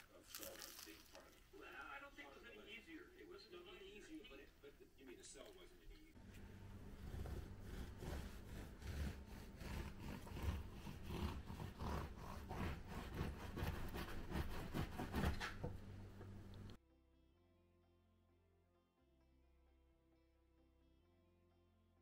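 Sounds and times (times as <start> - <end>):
chewing crunchy croissant: 0.0 - 1.5.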